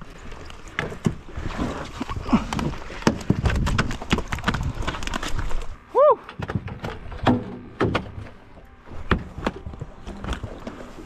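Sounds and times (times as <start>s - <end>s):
knocks and thumps on boat deck: 2.5s - 5.0s, 6.4s - 8.4s, 9.0s - 10.8s.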